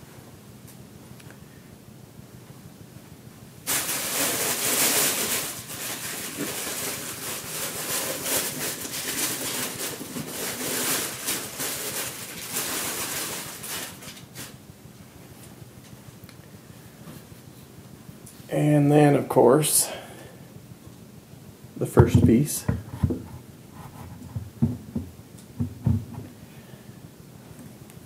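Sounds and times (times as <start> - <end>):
packing material crinkling: 3.7 - 14.6.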